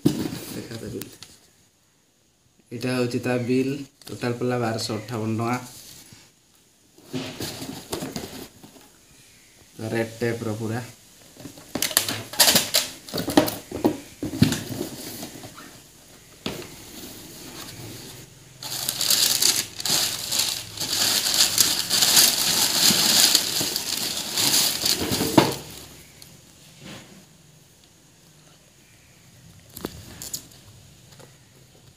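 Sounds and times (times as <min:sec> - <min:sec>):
tissue paper rustling: 0:16.8 - 0:26.1.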